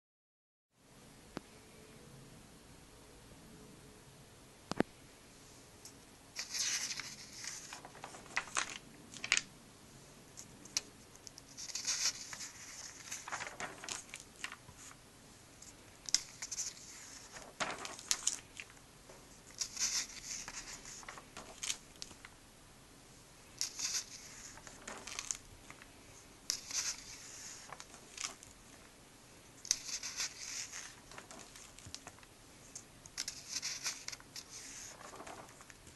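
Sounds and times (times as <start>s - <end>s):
pages turned by hand: 6.4s - 9.5s, 10.4s - 15.0s, 15.6s - 18.8s, 19.4s - 22.3s, 23.6s - 28.7s, 29.6s - 35.9s.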